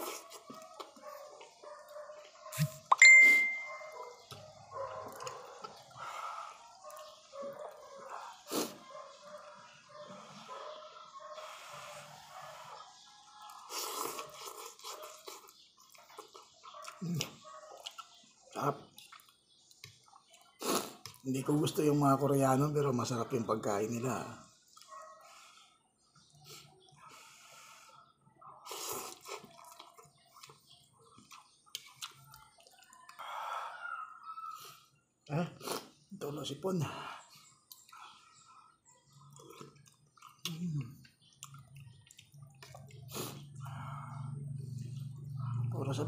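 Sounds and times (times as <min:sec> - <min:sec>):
man slurping and chewing noodles: 0:00.0 - 0:01.6, 0:05.0 - 0:08.8, 0:11.4 - 0:18.0, 0:19.0 - 0:21.2, 0:28.6 - 0:33.4, 0:35.6 - 0:36.1, 0:39.2 - 0:45.6
heavy nasal breathing: 0:05.9 - 0:06.8, 0:33.2 - 0:35.0, 0:43.1 - 0:44.6
person slurping noodles: 0:20.6 - 0:21.0, 0:28.7 - 0:29.6.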